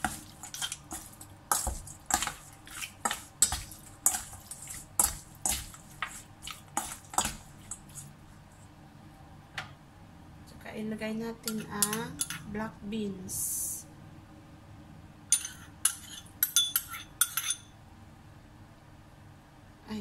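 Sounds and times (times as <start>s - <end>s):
metal spoon scraping steel bowl: 0.0s - 8.1s, 15.3s - 17.6s.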